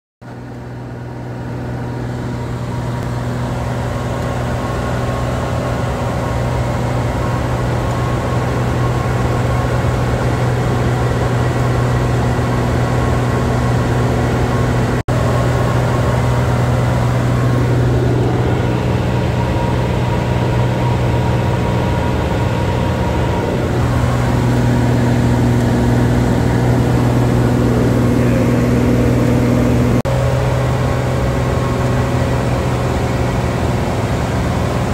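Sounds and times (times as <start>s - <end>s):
propeller plane engine droning: 0.2s - 34.9s.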